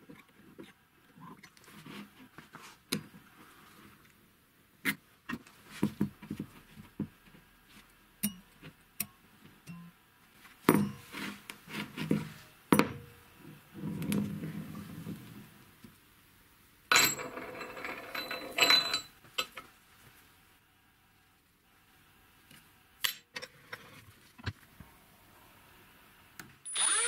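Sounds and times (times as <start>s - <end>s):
metal sleeve rolling on wood: 16.9s - 19.6s.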